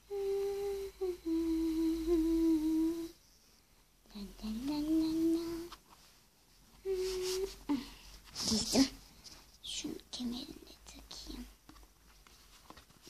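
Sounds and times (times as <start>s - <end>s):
person humming: 0.0s - 3.2s, 4.1s - 5.8s, 6.8s - 7.9s.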